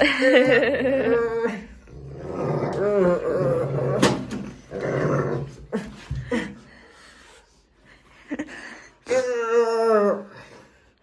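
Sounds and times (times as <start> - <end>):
puppy growling in play: 0.5 - 6.0.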